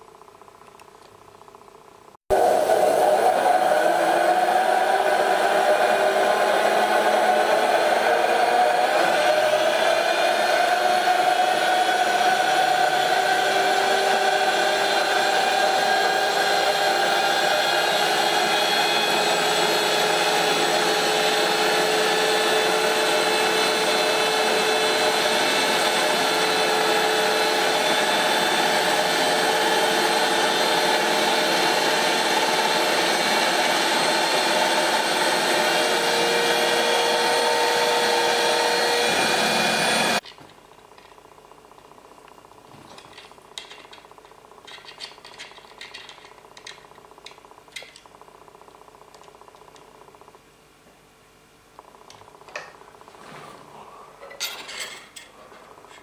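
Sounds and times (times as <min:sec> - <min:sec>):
electric drill whining: 0:02.3 - 0:40.2.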